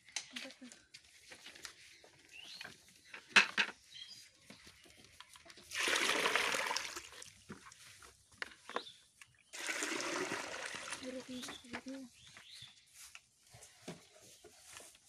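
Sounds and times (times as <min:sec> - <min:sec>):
water pouring into bucket: 0:05.6 - 0:07.8, 0:09.5 - 0:11.6.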